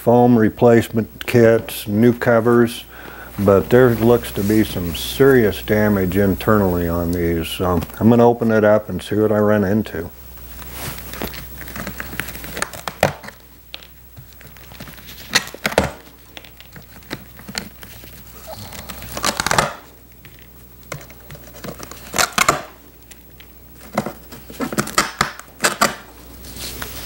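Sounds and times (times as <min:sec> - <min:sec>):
vinyl and foam tearing: 0:10.4 - 0:20.0, 0:20.8 - 0:22.8, 0:23.7 - 0:27.0.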